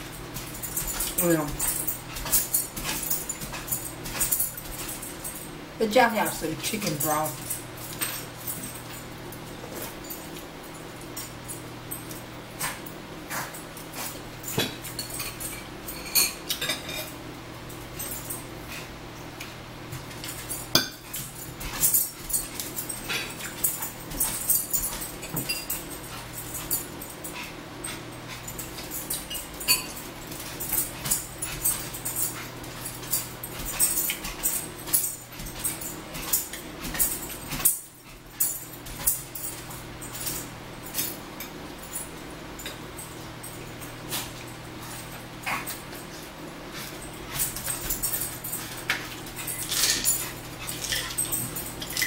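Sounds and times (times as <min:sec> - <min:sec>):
steady low hum: 0:00.0 - 0:52.0
cutlery clicking and scraping plates: 0:48.9 - 0:52.0.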